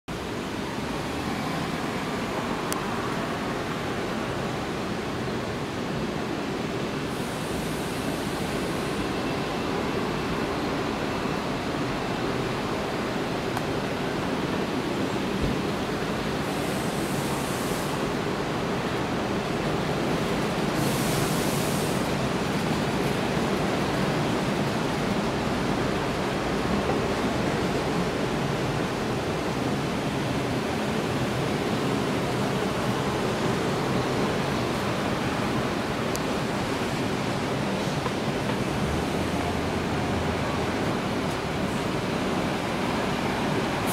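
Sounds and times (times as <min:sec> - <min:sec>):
distant jet engines roaring: 0:00.1 - 0:43.9
high hiss: 0:06.4 - 0:11.9, 0:13.9 - 0:26.4, 0:29.5 - 0:43.9.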